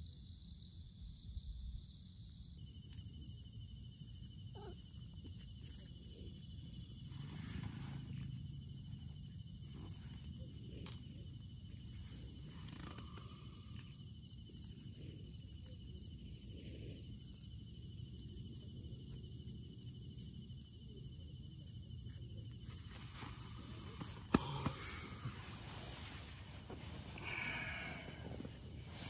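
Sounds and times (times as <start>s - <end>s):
insects chirring: 0.0s - 29.0s
cat purring: 4.5s - 4.8s.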